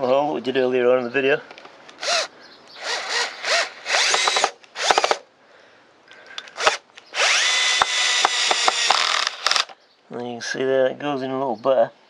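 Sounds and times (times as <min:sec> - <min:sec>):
cordless drill motor whining: 0:02.0 - 0:05.2, 0:06.6 - 0:09.7.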